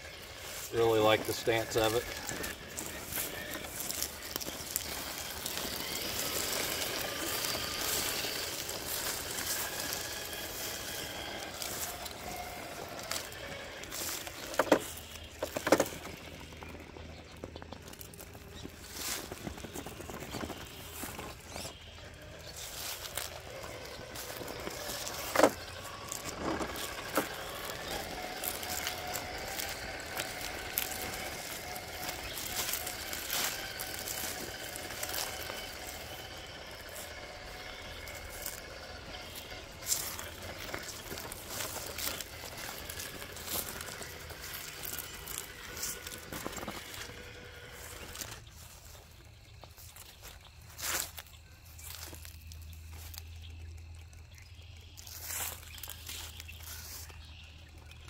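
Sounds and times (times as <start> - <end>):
electric motor whining: 0.0 - 58.0
toy truck knocking against rocks: 14.2 - 16.6.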